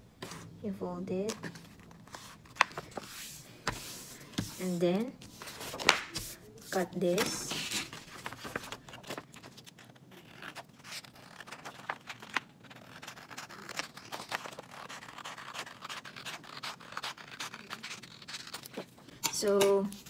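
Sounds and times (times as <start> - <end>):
paper rustling: 1.3 - 20.0
scissors snipping paper: 10.2 - 20.0.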